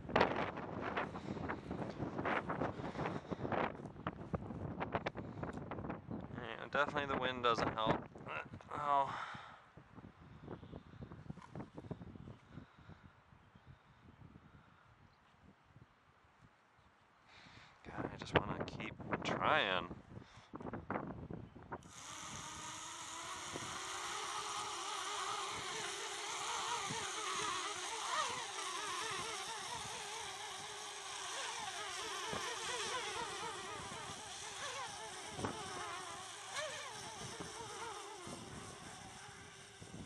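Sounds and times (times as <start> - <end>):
quadcopter propellers whining: 21.8 - 40.0.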